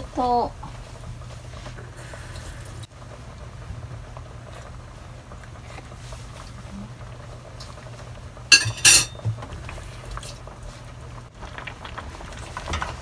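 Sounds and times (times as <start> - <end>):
steady low hum: 0.0 - 11.3
kitchenware clinking on steel pot: 8.5 - 9.2.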